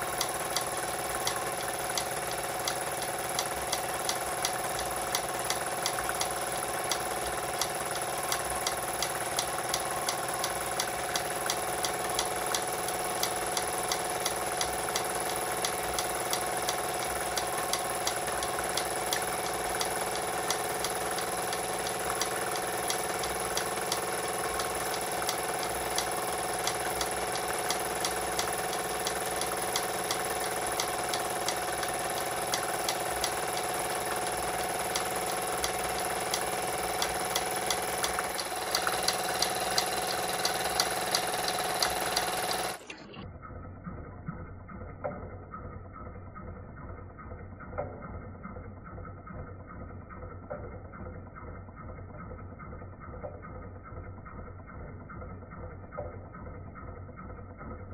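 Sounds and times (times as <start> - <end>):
model steam engine whirring: 0.0 - 43.0
quick regular ticking: 0.0 - 43.0.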